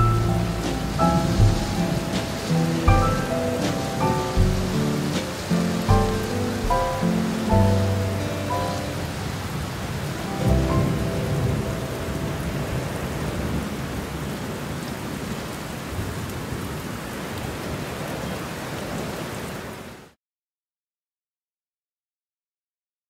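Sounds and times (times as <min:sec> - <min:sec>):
thunder rumbling: 0:00.0 - 0:16.9
heavy rain on leaves: 0:00.0 - 0:20.2.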